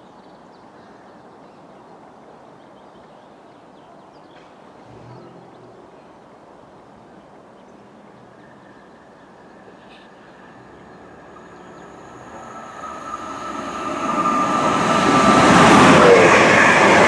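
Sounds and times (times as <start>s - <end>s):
faint bird chirps: 7.6s - 14.8s
distant electric train tone: 8.3s - 17.0s.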